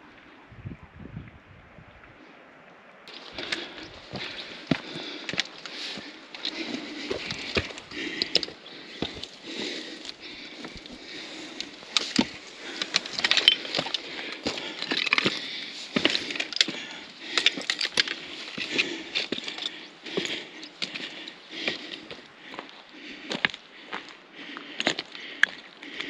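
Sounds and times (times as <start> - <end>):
flat stones clacking together: 3.1 - 22.2, 24.8 - 26.0
footsteps on slate rubble: 3.1 - 26.0.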